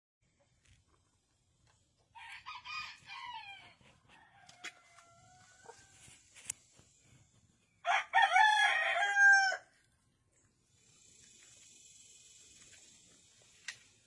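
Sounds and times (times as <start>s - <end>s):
roosters crowing: 2.1s - 6.2s, 7.8s - 9.8s.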